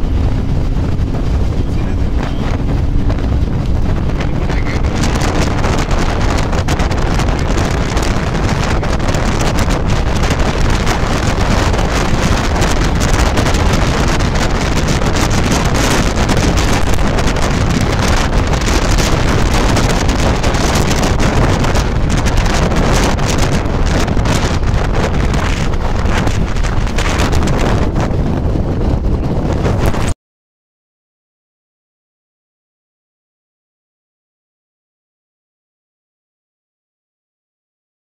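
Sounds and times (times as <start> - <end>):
road rumble: 0.0 - 30.2
wind buffeting microphone: 0.0 - 30.2.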